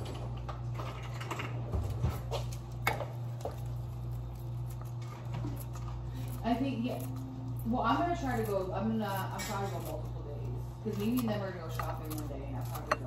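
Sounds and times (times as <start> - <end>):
steady low hum: 0.0 - 13.0
scissors snipping: 10.9 - 13.0.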